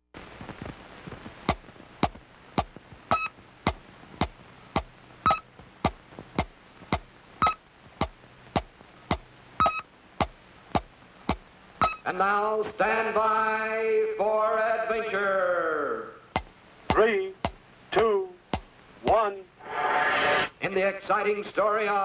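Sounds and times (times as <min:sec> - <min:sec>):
film soundtrack hiss: 0:00.0 - 0:22.0
electronic ticking: 0:01.5 - 0:03.4, 0:04.2 - 0:06.0, 0:06.9 - 0:12.0
short high beep: 0:11.8 - 0:12.0.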